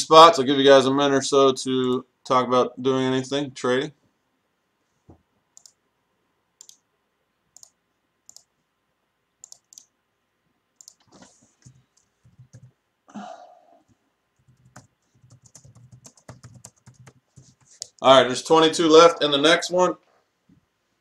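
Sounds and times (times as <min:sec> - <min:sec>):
computer mouse clicks: 0:05.6 - 0:05.8, 0:06.6 - 0:06.8, 0:07.6 - 0:08.5, 0:09.4 - 0:09.9, 0:10.8 - 0:12.7
keyboard keystrokes: 0:09.4 - 0:09.9, 0:14.4 - 0:18.0.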